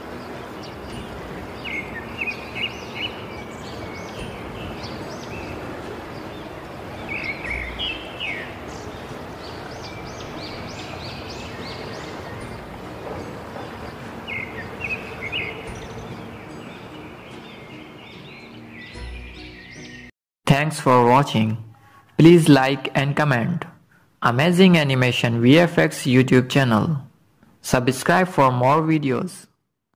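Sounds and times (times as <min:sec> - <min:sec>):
falling water rushing: 0:00.0 - 0:17.6
small birds chirping: 0:00.0 - 0:20.1.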